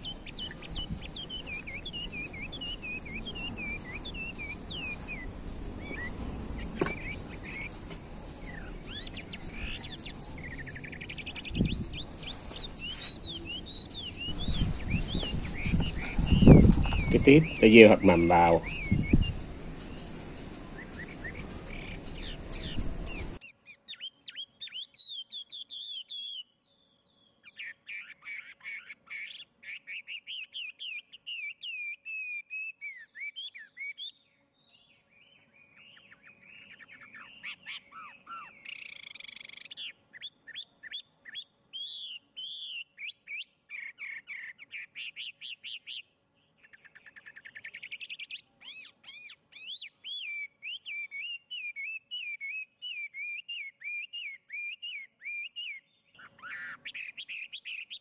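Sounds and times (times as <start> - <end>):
steady background hiss: 0.0 - 23.4
songbirds chirping: 0.0 - 58.0.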